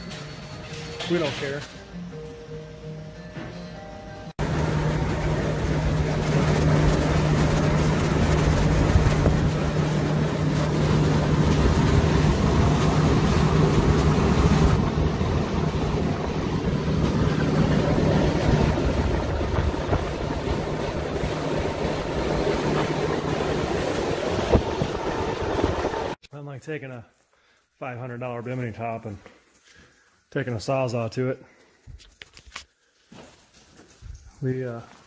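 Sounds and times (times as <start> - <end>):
outboard motor hum: 4.4 - 26.2.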